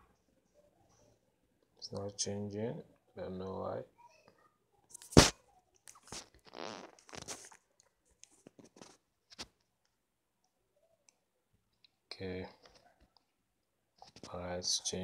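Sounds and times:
faint rustling of phone handling: 0:07.2 - 0:09.7, 0:14.0 - 0:14.4.

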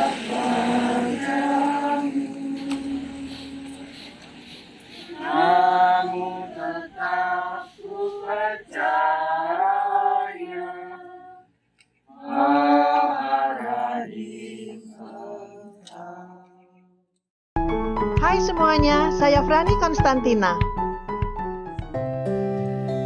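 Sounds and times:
unaccompanied singing voices: 0:00.0 - 0:11.5, 0:12.1 - 0:16.6.

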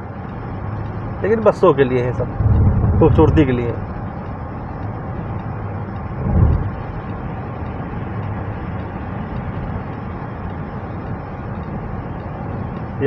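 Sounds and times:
car road and engine noise: 0:00.0 - 0:13.0
low rumble: 0:01.2 - 0:07.6.

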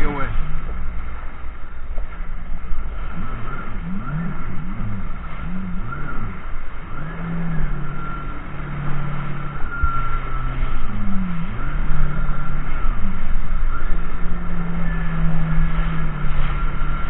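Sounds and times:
jet ski engine revving: 0:00.0 - 0:17.0
rushing water: 0:00.0 - 0:17.0
wind noise: 0:00.0 - 0:17.0.

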